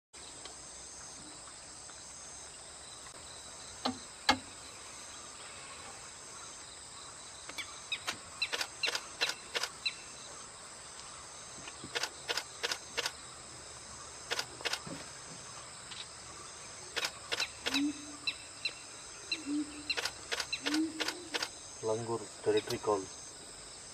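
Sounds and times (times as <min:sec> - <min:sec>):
high-pitched insect chirring: 0:17.0 - 0:21.8.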